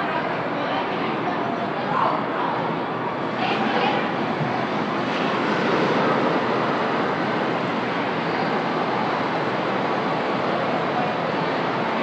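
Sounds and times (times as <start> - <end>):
roller coaster car on track: 0.0 - 12.0.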